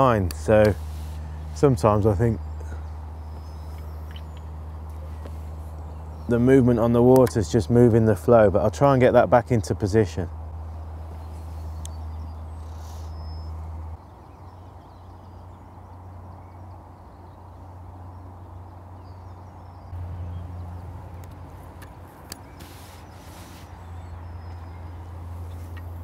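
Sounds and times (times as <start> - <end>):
faint birdsong: 0.0 - 26.0
brief hiss: 22.5 - 23.8.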